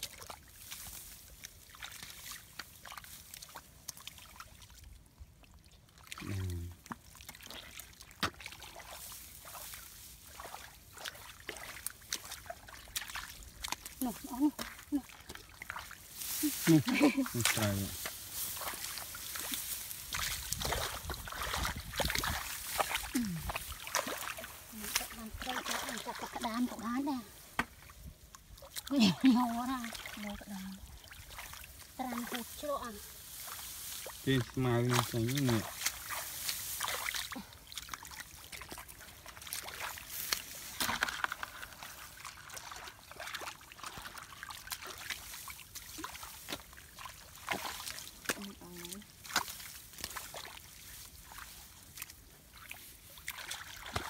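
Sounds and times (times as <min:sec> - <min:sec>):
water squelching and sloshing: 0:00.0 - 0:54.0.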